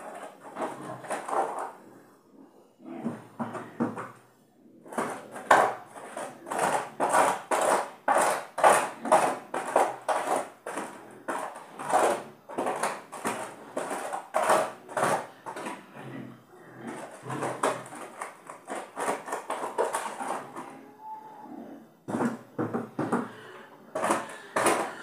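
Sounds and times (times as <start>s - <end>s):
pig grunting: 15.2s - 18.2s, 20.0s - 22.0s.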